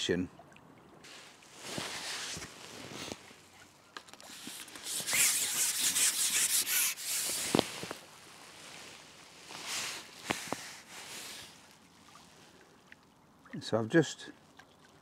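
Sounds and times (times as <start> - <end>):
fishing pole rubbing hiss: 1.1 - 3.2, 4.2 - 11.7.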